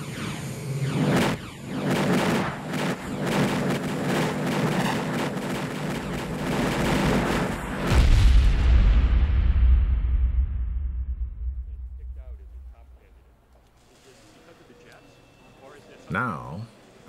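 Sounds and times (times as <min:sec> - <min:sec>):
crackling popping hits: 0:01.1 - 0:12.1
steady low drone: 0:05.3 - 0:13.4
deep rumble: 0:05.8 - 0:13.3.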